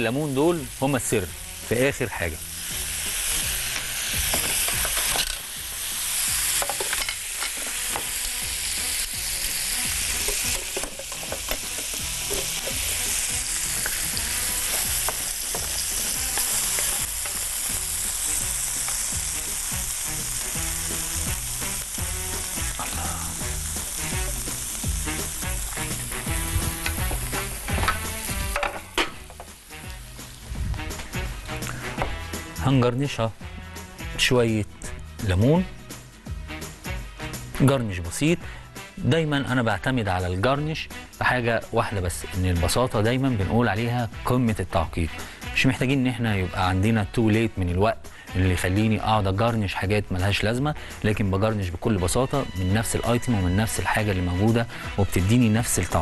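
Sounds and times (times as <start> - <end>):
food frying in oil: 0.0 - 30.5.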